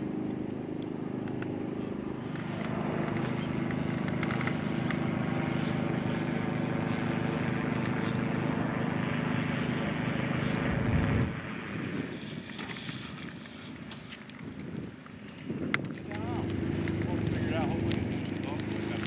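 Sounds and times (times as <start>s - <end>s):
engine idling: 0.0s - 10.8s, 16.0s - 19.0s
light crackles: 2.2s - 5.0s, 12.1s - 19.0s.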